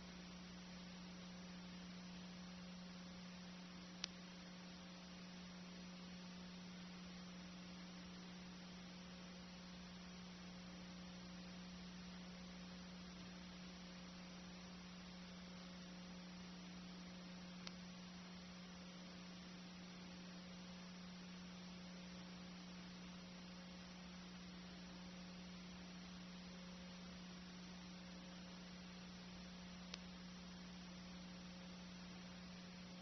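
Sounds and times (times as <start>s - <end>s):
faint hiss: 0.0s - 33.0s
low electrical hum: 0.0s - 33.0s
faint click: 3.8s - 4.3s, 17.6s - 17.9s, 29.6s - 30.8s.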